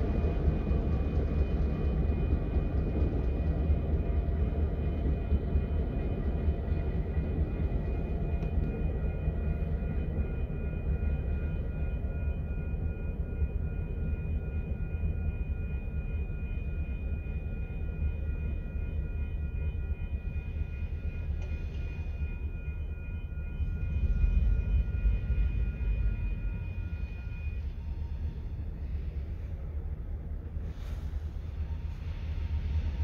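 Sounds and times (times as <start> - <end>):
distant diesel locomotive rumble: 0.0 - 33.0
thin high whine: 7.1 - 33.0.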